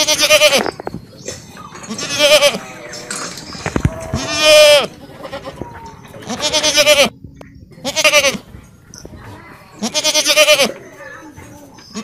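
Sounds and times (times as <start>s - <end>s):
goats bleating: 0.0s - 0.8s, 1.8s - 3.1s, 3.7s - 7.2s, 9.8s - 10.8s.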